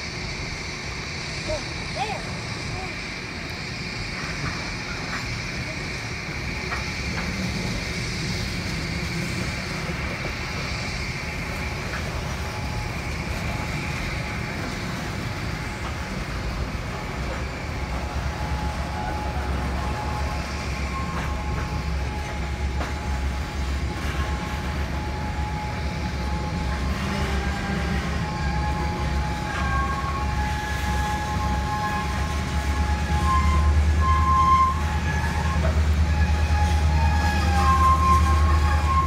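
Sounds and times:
steel wheels rumbling on rail: 0.0 - 39.0
faint wheel squeal: 27.0 - 39.0.

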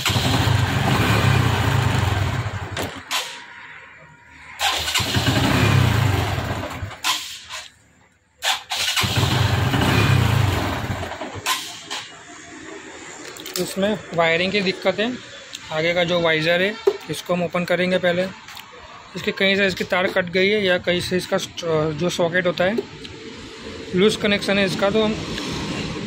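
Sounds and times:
motorcycle engine running: 0.0 - 2.8, 5.0 - 7.0, 9.0 - 11.4.

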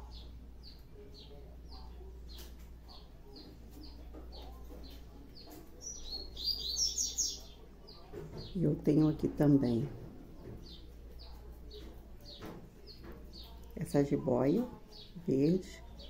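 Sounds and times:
small bird chirping: 0.0 - 8.7.

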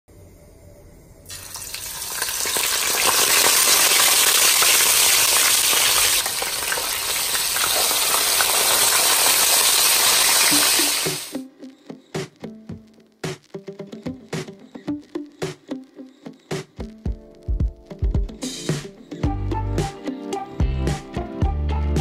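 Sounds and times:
fish sizzling in hot oil: 1.3 - 11.4
oil crackling spatters: 1.3 - 11.4.

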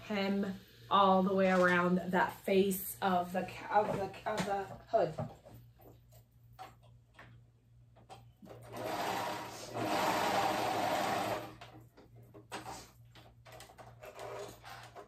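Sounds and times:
sewing machine stitching: 8.4 - 11.7, 13.5 - 15.0.

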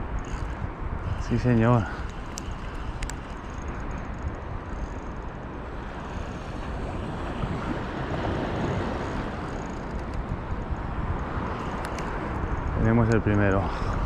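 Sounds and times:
wind buffeting microphone: 0.0 - 14.0
shallow sea water washing: 5.7 - 12.7.

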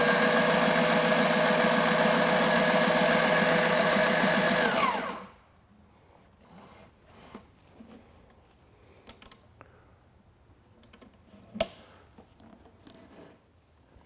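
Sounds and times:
sewing machine stitching: 0.0 - 5.3.

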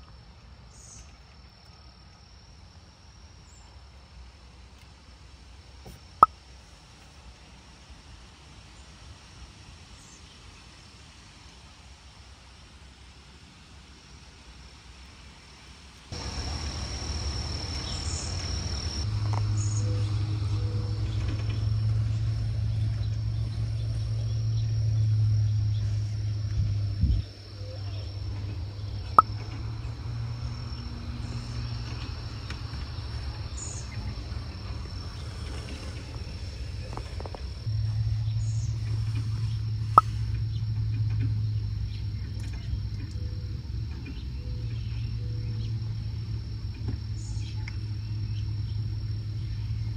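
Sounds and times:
high insect trill: 16.1 - 49.9
low hum: 16.2 - 49.9.

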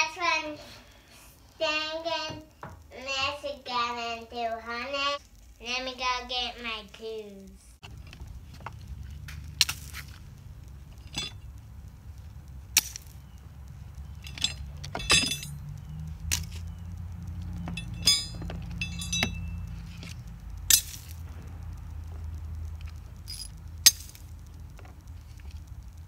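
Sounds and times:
low rumble: 7.8 - 26.0
metal hand tools clanking: 10.9 - 11.5, 14.1 - 16.6, 17.6 - 21.2, 23.3 - 24.2.

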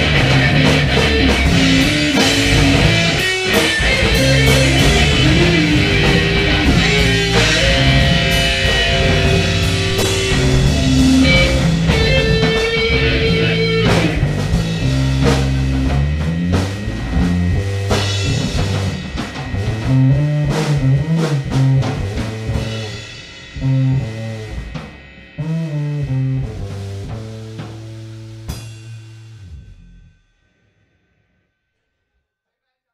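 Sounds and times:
electric guitar: 0.0 - 24.8
drum kit: 0.0 - 30.2.

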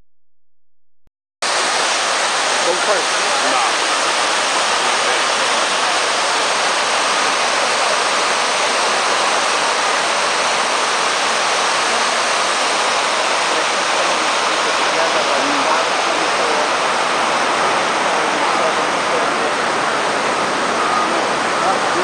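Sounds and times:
waterfall rushing into pool: 1.4 - 22.0.

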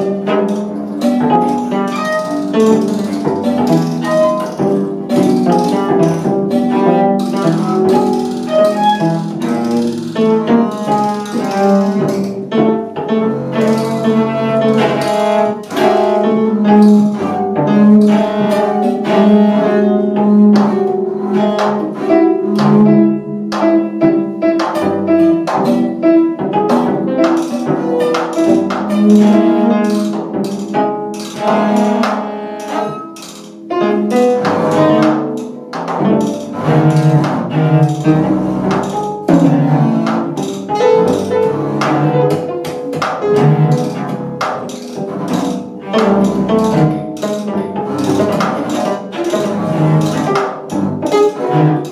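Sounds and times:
snare drum clicks and taps: 0.0 - 12.7, 24.4 - 51.9
bowed cello and double bass: 0.0 - 51.9.

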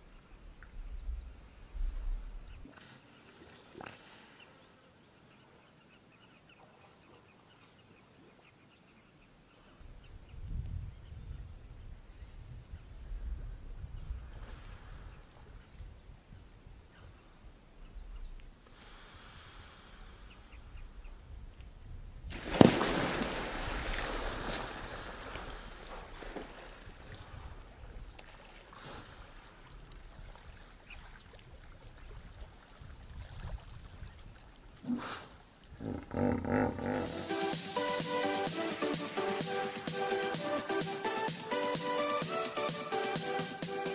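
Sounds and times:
loud water splash: 22.3 - 27.2
water churning: 22.3 - 37.7.

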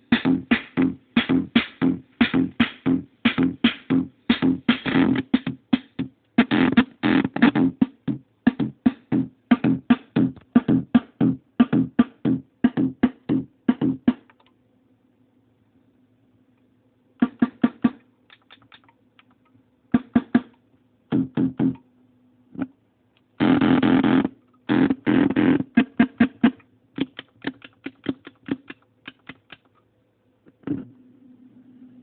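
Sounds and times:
steady low hum: 0.0 - 18.3, 18.9 - 32.0.

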